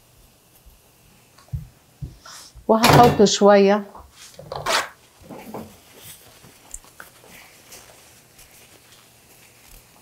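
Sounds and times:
soft rustling: 5.0 - 10.0.

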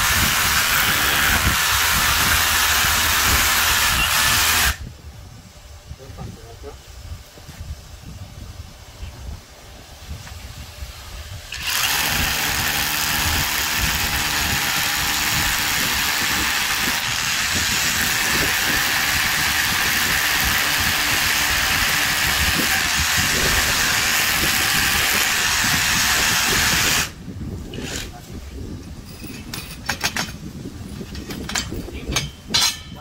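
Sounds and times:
rotary hammer drilling into concrete: 0.0 - 4.8, 11.4 - 28.1.

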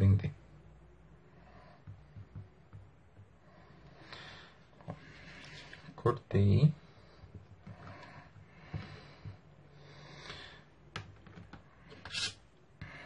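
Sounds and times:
clay handling clicks and taps: 1.8 - 3.4, 10.9 - 12.0.

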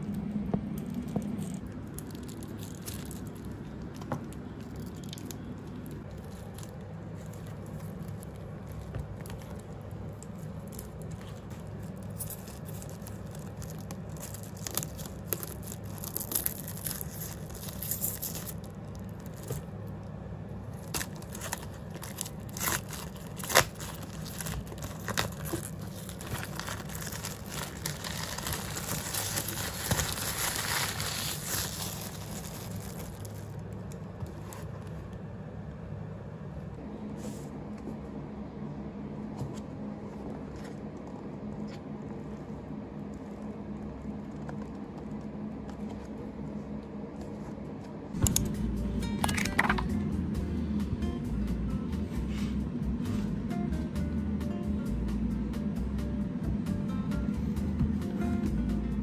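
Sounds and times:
plastic wrapping crinkling and tearing: 0.0 - 20.0, 20.7 - 35.1
low hum: 0.0 - 59.0.

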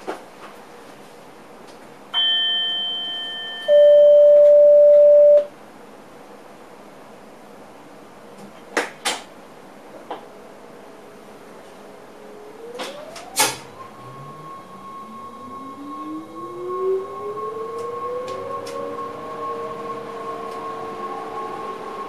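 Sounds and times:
electronic chime: 2.2 - 5.5, 13.0 - 17.5
steady warning beep: 2.2 - 5.5.

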